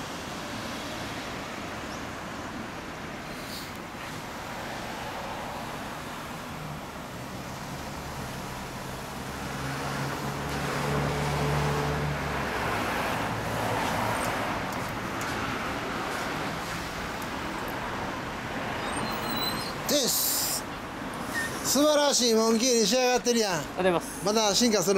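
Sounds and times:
vehicle passing: 4.0s - 19.0s.

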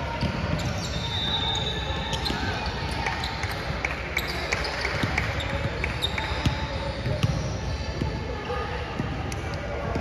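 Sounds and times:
gym crowd murmur: 0.0s - 10.0s
basketball bouncing on court: 0.1s - 1.0s, 4.3s - 8.2s
shoe squeaks: 0.1s - 3.6s, 4.2s - 8.1s.

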